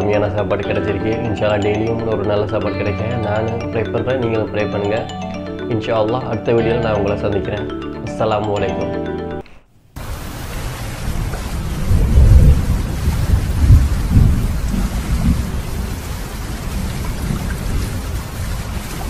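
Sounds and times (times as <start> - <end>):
steady rain: 10.0 - 19.0
thunder rumbling: 10.4 - 19.0.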